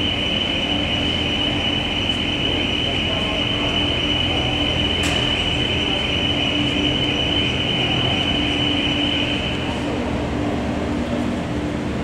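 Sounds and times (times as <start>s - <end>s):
machine drone with whine and hum: 0.0s - 12.0s.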